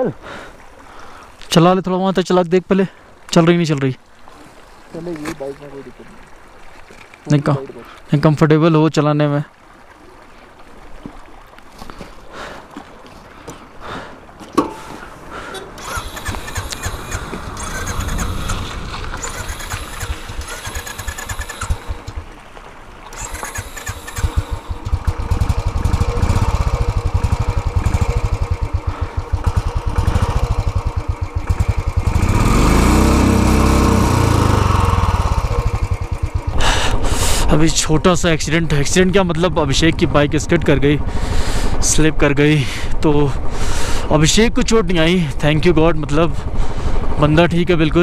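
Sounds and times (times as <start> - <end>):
motorcycle engine revving: 15.8 - 22.3, 23.1 - 37.4
motorcycle engine starting and running: 15.8 - 22.3, 23.1 - 37.6.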